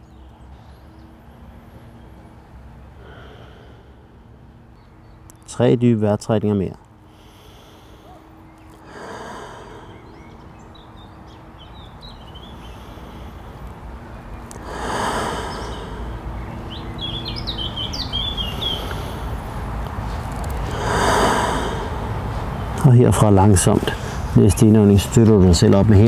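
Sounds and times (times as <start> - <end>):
songbirds chirping: 0.0 - 26.0
slow deep breaths: 1.5 - 4.8, 7.0 - 22.8, 23.8 - 24.4.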